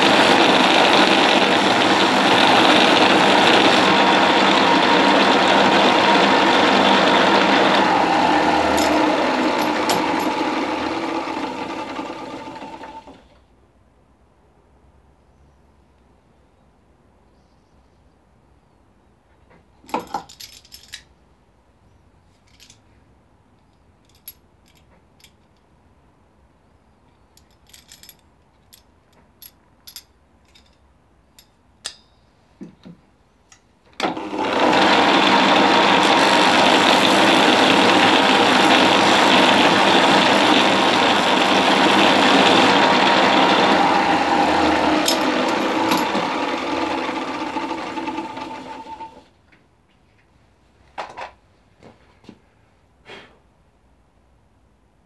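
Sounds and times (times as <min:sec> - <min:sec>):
bench sander running: 0:00.0 - 0:13.2, 0:34.0 - 0:49.2.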